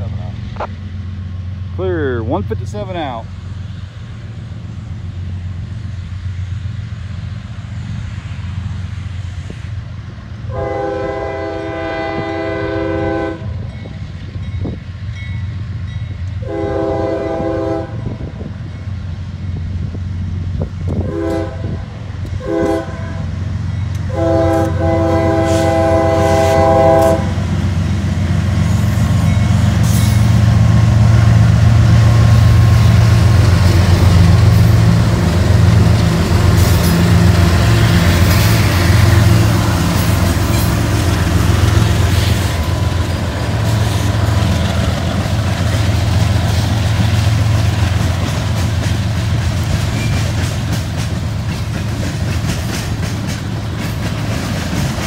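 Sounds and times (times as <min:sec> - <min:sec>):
locomotive engines rumbling: 0:00.0 - 0:55.0
sharp train clanks: 0:00.0 - 0:55.0
locomotive air horn: 0:10.5 - 0:13.6, 0:16.4 - 0:18.3, 0:21.0 - 0:23.2, 0:24.1 - 0:27.4.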